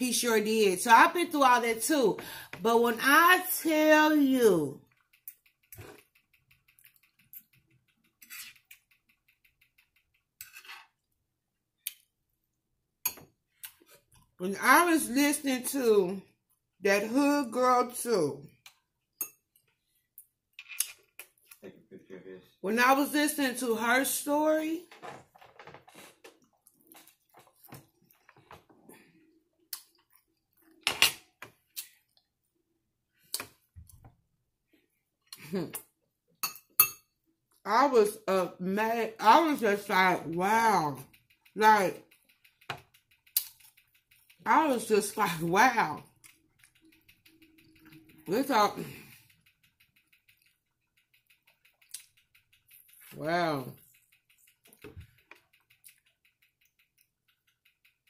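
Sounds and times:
quiet eating sounds: 0:04.8 - 0:12.6, 0:18.4 - 0:22.6, 0:25.7 - 0:37.7, 0:41.0 - 0:44.4, 0:46.0 - 0:58.0
fork scraping glass bowl: 0:08.1 - 0:08.9, 0:10.4 - 0:11.0
soft eating sounds: 0:18.5 - 0:22.6, 0:25.9 - 0:30.8, 0:46.0 - 0:48.3.

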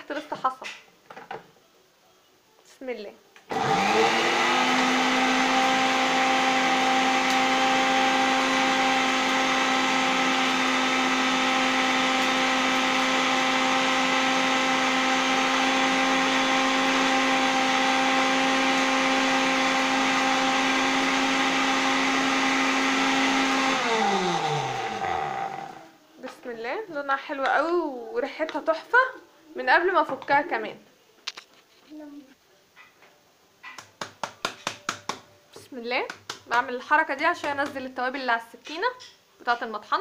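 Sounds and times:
electric blender grinding spices: 0:03.5 - 0:25.9
motor spinning down: 0:23.7 - 0:25.8.

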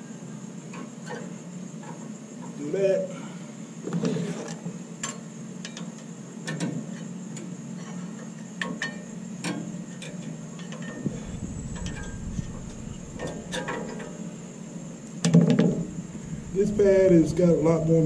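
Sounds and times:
low rumble: 0:11.0 - 0:13.9, 0:16.0 - 0:17.2
steady low hum: 0:11.0 - 0:15.1, 0:15.8 - 0:18.0.

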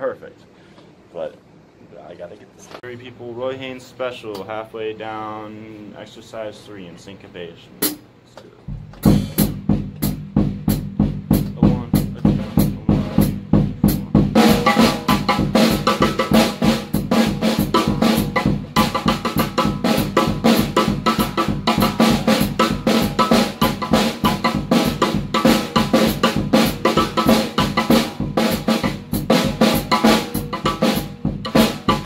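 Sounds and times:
snare drum strokes: 0:07.8 - 0:08.1, 0:08.7 - 0:32.0
bass drum pulse: 0:08.7 - 0:32.0.

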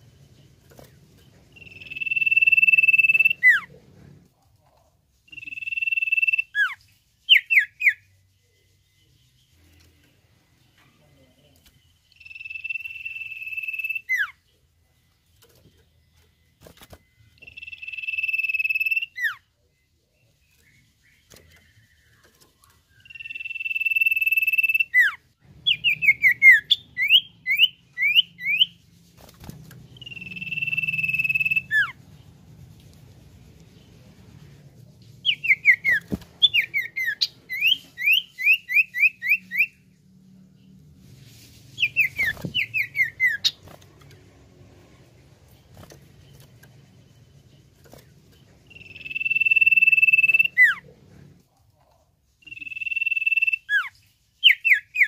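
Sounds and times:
faint low hum: 0:00.0 - 0:07.3, 0:08.0 - 0:54.2
bird whistling song: 0:01.5 - 0:03.7, 0:05.3 - 0:08.2, 0:12.1 - 0:14.4, 0:17.0 - 0:19.4, 0:20.4 - 0:28.8, 0:29.9 - 0:32.0, 0:35.2 - 0:39.8, 0:41.7 - 0:43.7, 0:48.6 - 0:50.8, 0:52.4 - 0:55.0.

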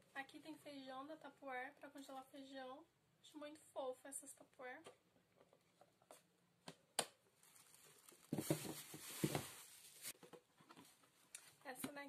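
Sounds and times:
plastic containers rustling and knocking: 0:07.4 - 0:12.0.

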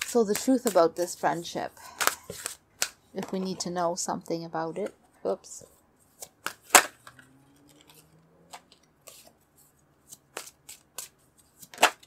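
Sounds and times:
cards being shuffled: 0:00.0 - 0:03.5, 0:06.0 - 0:12.0.

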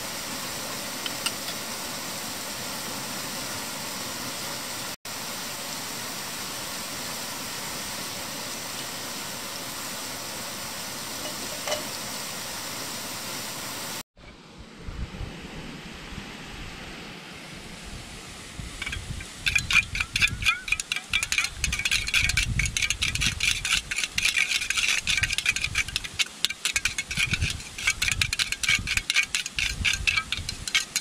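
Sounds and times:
metal ring clinking: 0:18.8 - 0:31.0.

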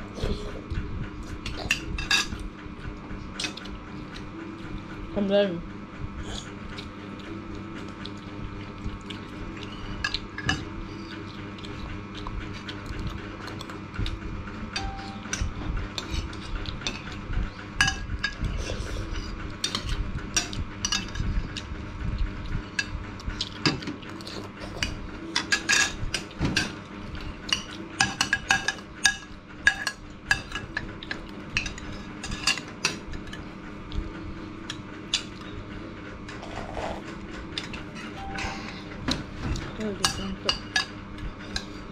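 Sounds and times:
spoons clinking on ceramic bowls: 0:14.8 - 0:15.5.

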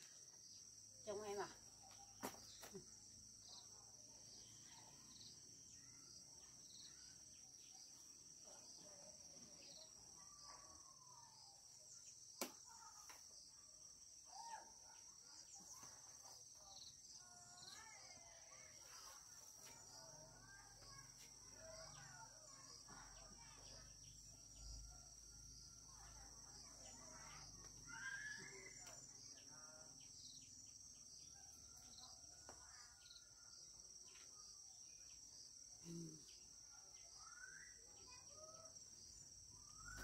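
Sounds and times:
faint wavering calls: 0:27.0 - 0:29.0.

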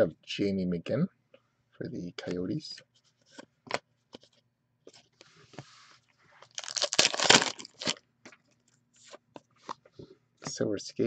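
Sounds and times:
wrapper tearing open: 0:06.5 - 0:08.0.

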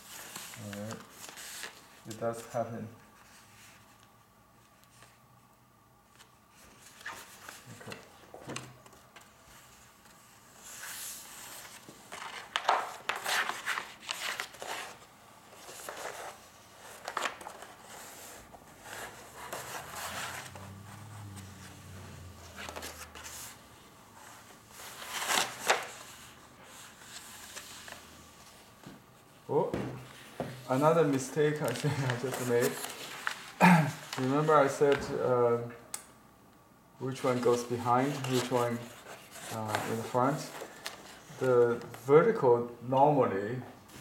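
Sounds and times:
paper rustling and crinkling: 0:00.0 - 0:04.1, 0:06.0 - 0:23.6, 0:24.2 - 0:28.9, 0:30.0 - 0:35.2, 0:37.1 - 0:42.1.

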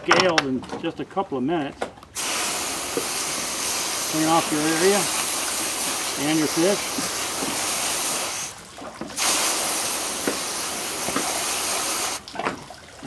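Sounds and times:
hose nozzle spraying water: 0:02.2 - 0:08.6, 0:09.2 - 0:12.3.

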